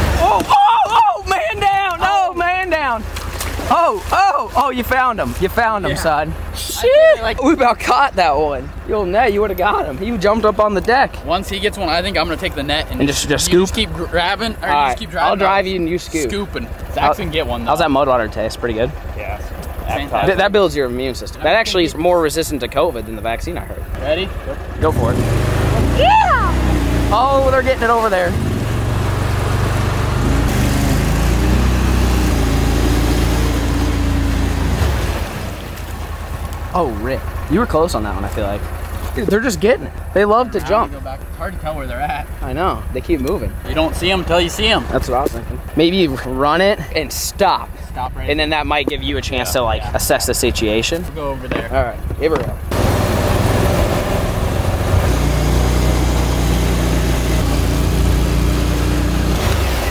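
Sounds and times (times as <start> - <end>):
water splashing past hull: 0.0 - 7.8, 24.2 - 39.2
boat motor running: 0.0 - 59.9.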